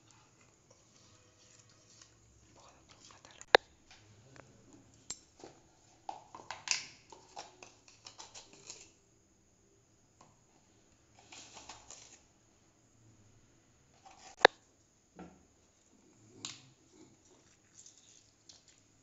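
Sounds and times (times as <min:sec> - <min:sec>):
kitchen items clattering on counter: 0:05.1 - 0:09.0.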